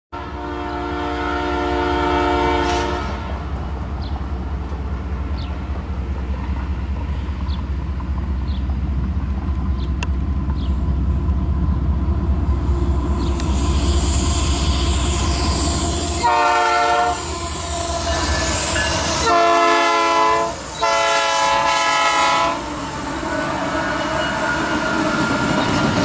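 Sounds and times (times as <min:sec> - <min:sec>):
locomotive horn chord: 0:00.2 - 0:03.4, 0:14.7 - 0:24.7
diesel locomotive rumble: 0:00.2 - 0:26.0.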